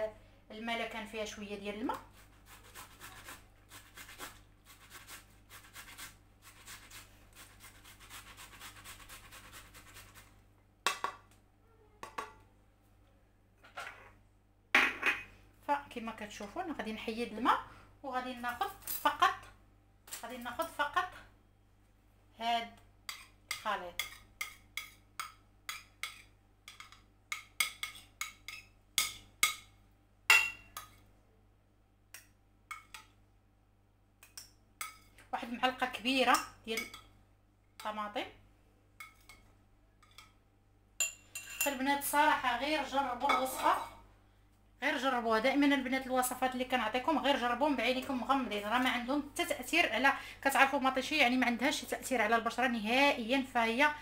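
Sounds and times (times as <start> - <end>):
spoon clinking on a plate: 41.0 - 41.8.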